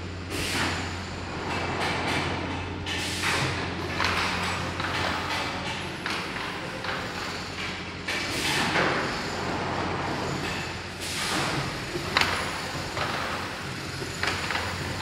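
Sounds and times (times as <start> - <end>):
motor hum: 11.9 - 15.0.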